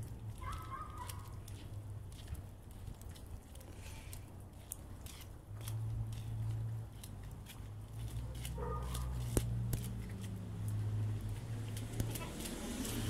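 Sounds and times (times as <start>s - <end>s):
wet snow ticking on microphone: 0.0s - 13.0s
vehicle engine hum: 5.5s - 13.0s.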